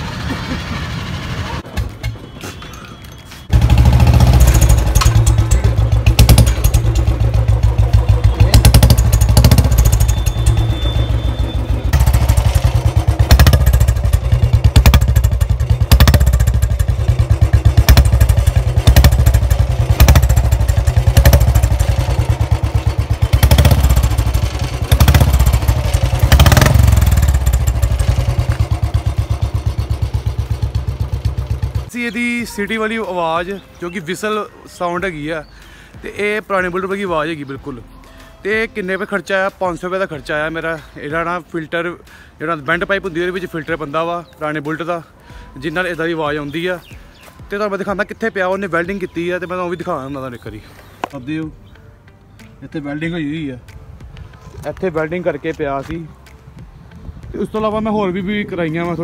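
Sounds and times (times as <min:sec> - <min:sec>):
motorcycle engine with whistling exhaust: 0:00.0 - 0:32.2.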